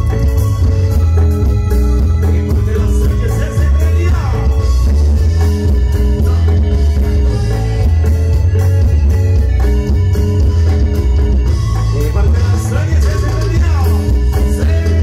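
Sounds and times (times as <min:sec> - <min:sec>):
drums: 0:00.0 - 0:15.0
electric guitar: 0:00.0 - 0:15.0
heavy bass line: 0:00.0 - 0:15.0.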